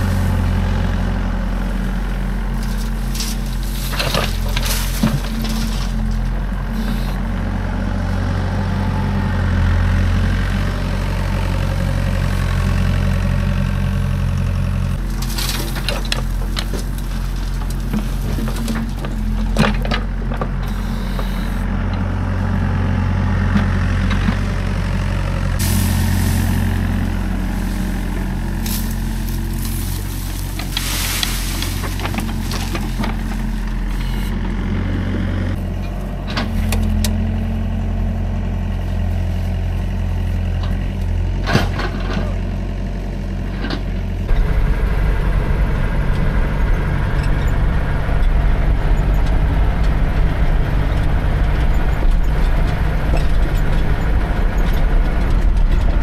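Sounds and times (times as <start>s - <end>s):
heavy truck engine idling: 0.0s - 56.0s
knocks and clattering: 2.6s - 6.4s, 26.6s - 34.0s.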